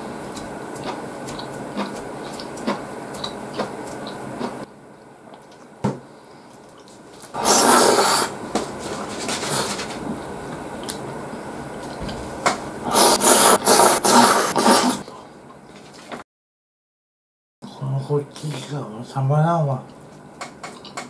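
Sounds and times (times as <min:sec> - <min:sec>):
chewing and mouth sounds: 0:00.3 - 0:05.7, 0:10.7 - 0:11.0, 0:20.6 - 0:21.0
loud noodle slurping: 0:07.4 - 0:08.4, 0:12.8 - 0:15.0.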